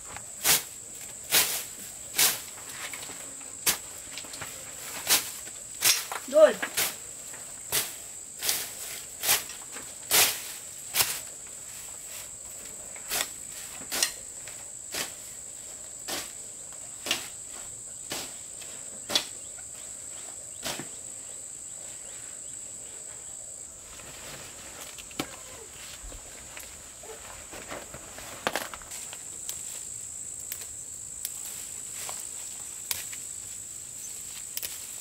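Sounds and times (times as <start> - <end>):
vegetation rustling and snapping: 2.2 - 7.0, 24.0 - 29.8, 30.4 - 33.3, 34.2 - 35.0.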